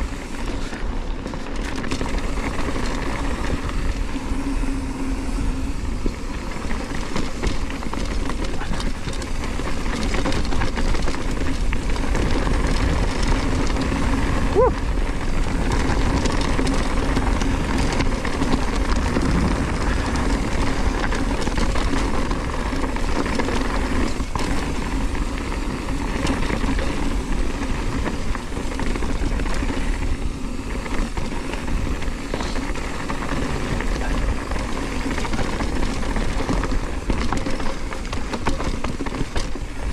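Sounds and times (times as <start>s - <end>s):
bike rattling over rough ground: 0.0s - 39.9s
bike tyres rumbling on gravel: 0.0s - 39.9s
wind on microphone: 11.6s - 23.0s.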